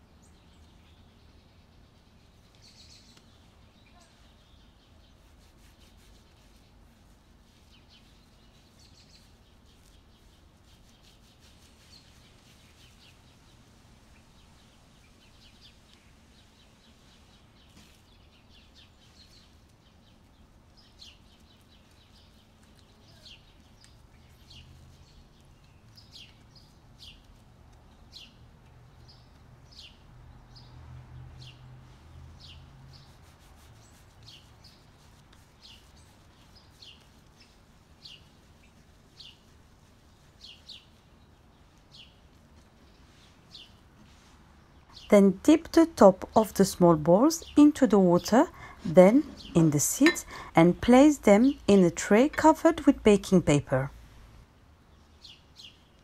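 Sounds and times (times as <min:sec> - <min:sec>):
low steady hum: 0:31.9 - 0:55.2.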